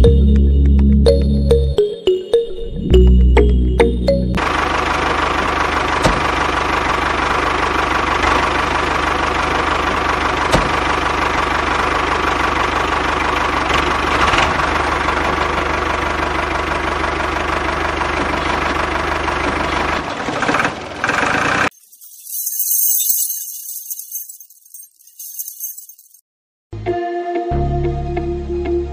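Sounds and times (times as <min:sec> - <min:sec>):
tractor engine running: 0:03.0 - 0:21.8.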